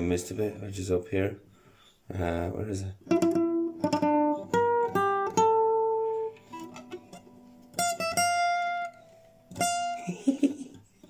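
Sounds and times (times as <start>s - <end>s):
classical guitar notes: 2.9s - 10.0s.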